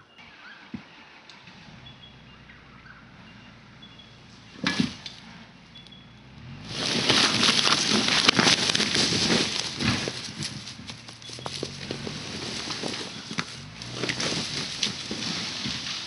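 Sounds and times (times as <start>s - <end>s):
log scraping through leaf litter: 6.4s - 16.0s.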